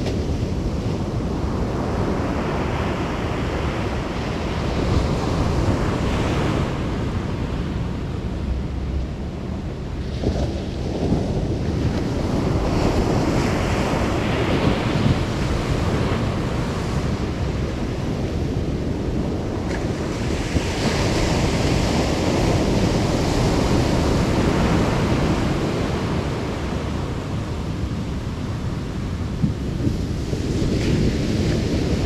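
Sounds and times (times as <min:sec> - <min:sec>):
surf breaking on a beach: 0:00.0 - 0:32.0
wind buffeting the microphone: 0:00.0 - 0:32.0.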